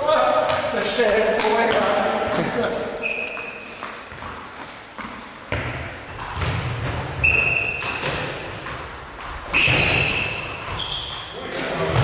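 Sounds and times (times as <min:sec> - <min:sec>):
shoes squeaking on hall floor: 0:00.0 - 0:12.0
ball and feet thudding: 0:03.3 - 0:12.0.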